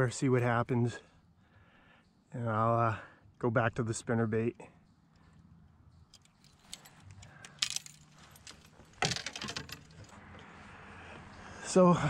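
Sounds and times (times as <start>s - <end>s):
fishing tackle clinking: 6.0s - 10.2s
jingling clicks: 6.0s - 10.2s.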